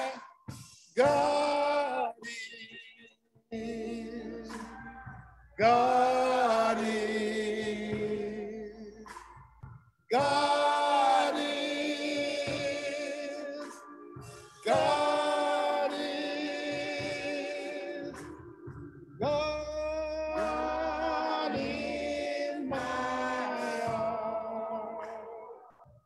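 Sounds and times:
group singing a slow hymn: 3.6 - 8.9, 10.2 - 25.6.

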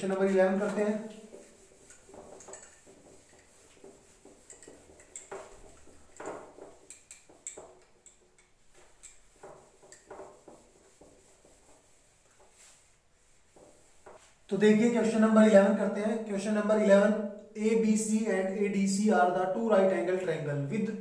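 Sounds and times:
duster scrubbing whiteboard: 0.0 - 8.0, 8.6 - 15.2.

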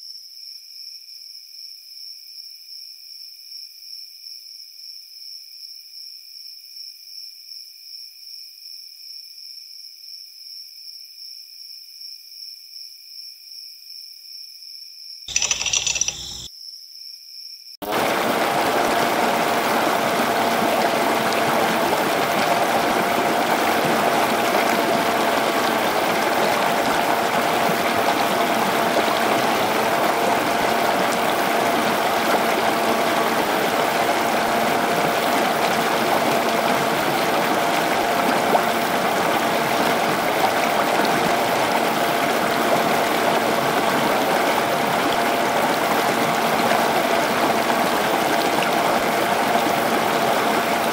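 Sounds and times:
small water pump motor whining: 15.3 - 16.5, 17.8 - 50.9
water splashing into pool: 17.8 - 50.9.

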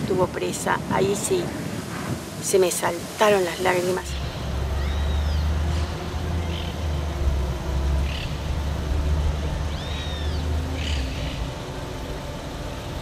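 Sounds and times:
high bird calls: 4.1 - 6.9, 9.7 - 11.5
low rumble: 4.1 - 13.0.

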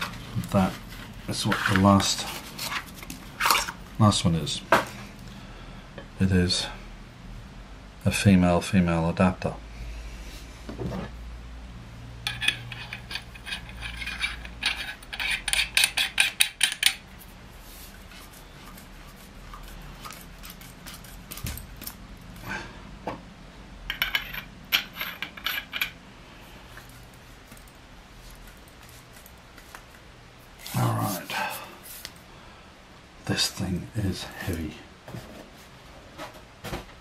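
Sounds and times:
metal tubes clinking: 23.9 - 26.0.

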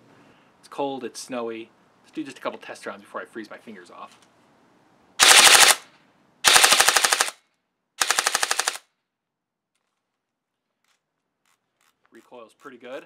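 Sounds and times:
airsoft rifle full-auto bursts: 5.2 - 7.4, 8.0 - 8.9.

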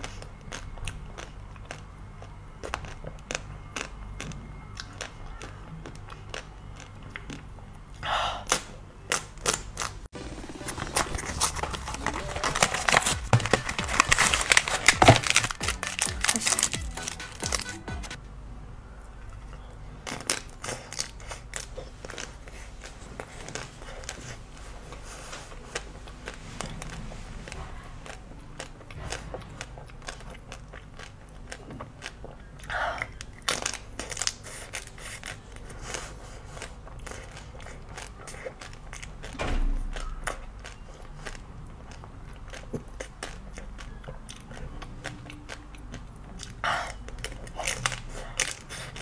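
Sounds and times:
chocolate shell crunching: 10.6 - 17.8.

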